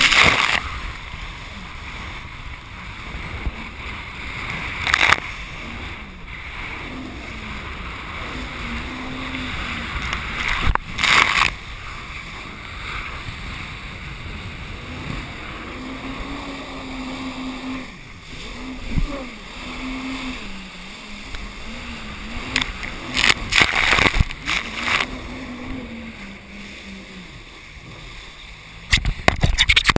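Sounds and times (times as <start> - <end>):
jet ski engine: 0.0 - 29.9
rush of water and wind: 0.0 - 29.9
loud splashes: 22.0 - 25.3.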